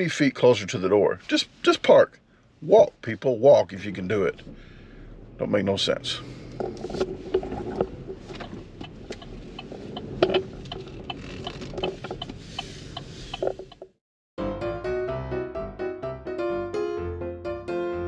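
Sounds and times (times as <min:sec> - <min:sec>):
car interior low rumble: 0:00.0 - 0:14.0.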